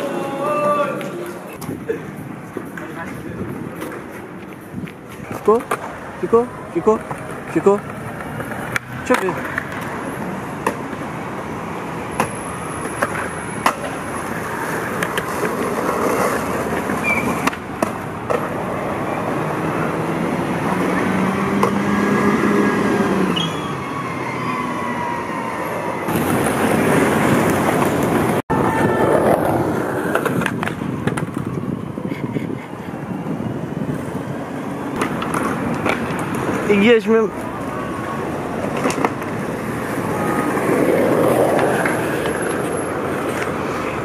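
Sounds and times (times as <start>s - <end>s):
bus traffic: 0.0s - 44.0s
skateboard wheels rolling on pavement: 0.0s - 44.0s
skateboard clacks: 12.2s - 18.8s, 26.1s - 31.6s, 34.9s - 36.7s, 38.2s - 44.0s.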